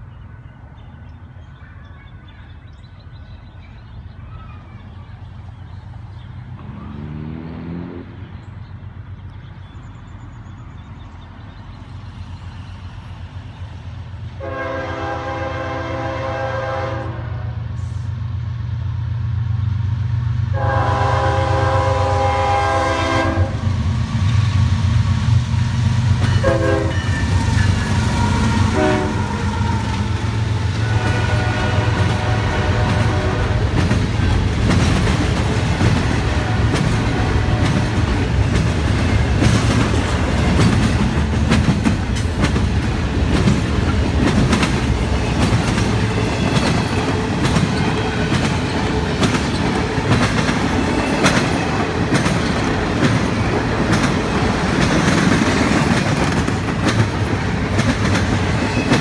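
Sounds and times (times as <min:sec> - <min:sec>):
diesel engines rumbling: 0:00.0 - 0:59.0
locomotive air horn blasts: 0:14.4 - 0:17.6, 0:20.5 - 0:23.7, 0:26.3 - 0:30.0, 0:30.7 - 0:33.7
train wheels clattering: 0:26.1 - 0:59.0.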